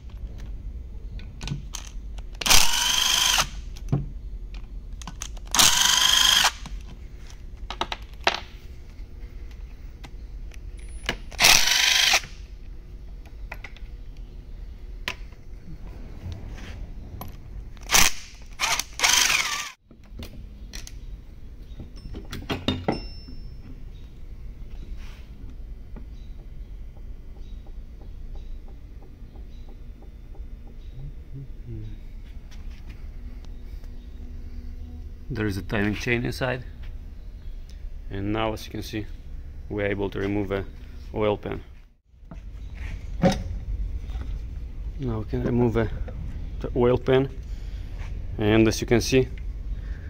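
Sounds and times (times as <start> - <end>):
impact driver whining: 2.4 - 3.6, 5.5 - 6.8, 11.2 - 12.5, 17.8 - 19.8.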